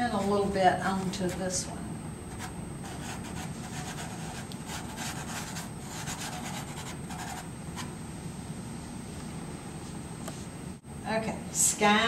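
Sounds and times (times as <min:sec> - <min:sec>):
pastel scratching on paper: 0:02.4 - 0:07.5.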